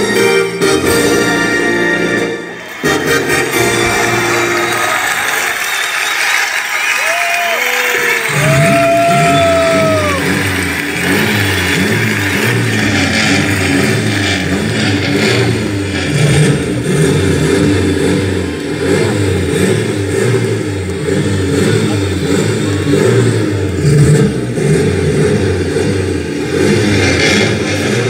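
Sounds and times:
vehicle engine revving: 0.0s - 28.0s.

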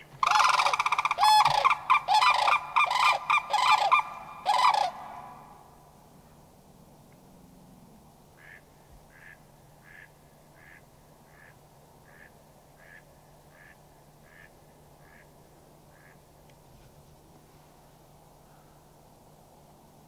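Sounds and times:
duck quacking: 8.4s - 15.3s, 15.9s - 16.2s.

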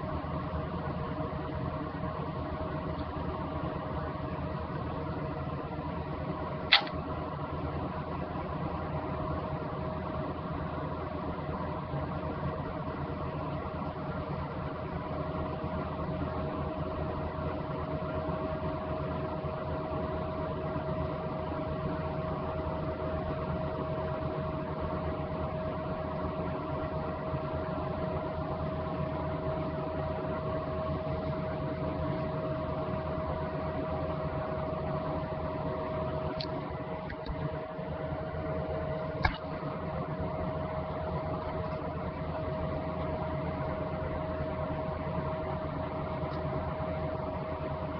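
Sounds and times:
electrical hum: 0.0s - 47.9s
sharp click: 6.7s - 7.0s, 39.2s - 39.5s.

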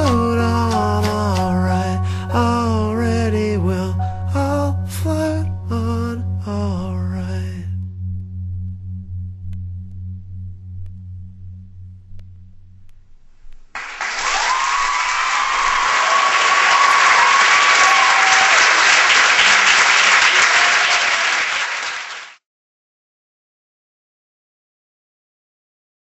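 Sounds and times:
low musical note: 0.0s - 13.5s
audience applause and cheering: 13.8s - 22.4s
whoops: 14.0s - 21.6s.

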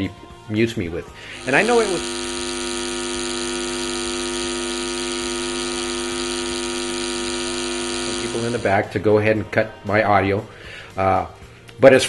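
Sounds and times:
steady electronic buzz tone: 1.2s - 8.9s.

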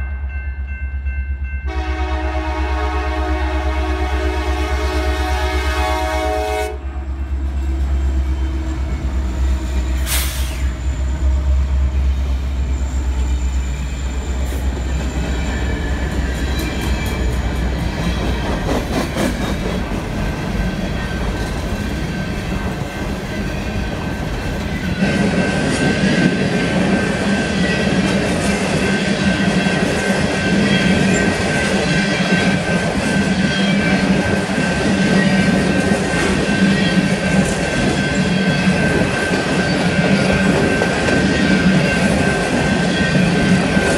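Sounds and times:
diesel locomotives rumbling past: 0.0s - 43.9s
locomotive horn: 1.7s - 11.7s
high wheel squeal: 8.3s - 18.0s
train cars rolling clatter: 8.3s - 43.9s.

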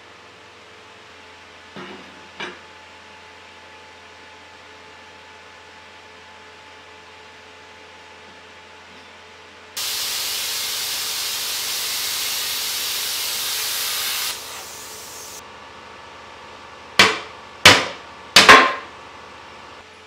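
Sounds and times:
welding arc hissing: 9.8s - 15.4s.

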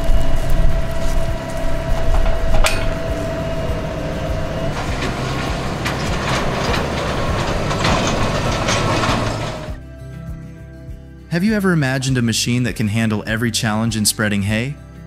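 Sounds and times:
tractor engine rumble: 0.0s - 9.8s
trailer frame rattling and clanking: 1.3s - 9.8s.

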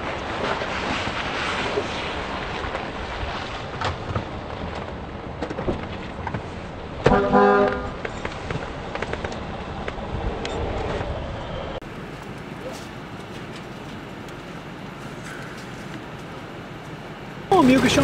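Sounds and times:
car road noise on wet road: 0.0s - 10.0s, 11.9s - 18.0s
car horn: 7.0s - 8.0s.

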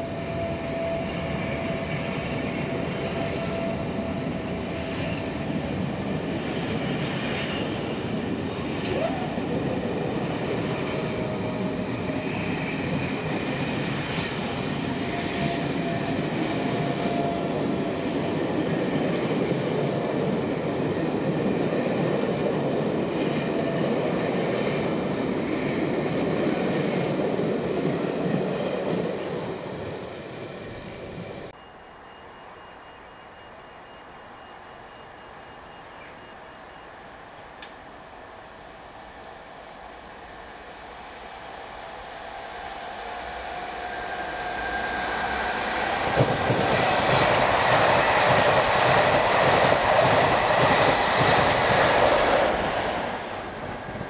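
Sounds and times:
train wheels rumbling on rails: 0.0s - 31.6s, 37.5s - 54.0s
clickety-clack of wheels: 46.0s - 53.1s.

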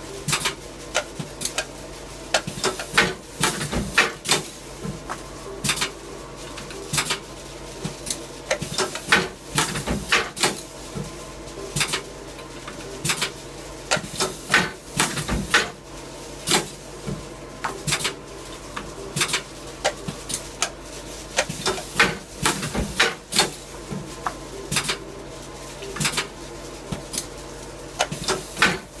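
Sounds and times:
steady machine hum: 0.0s - 29.0s.

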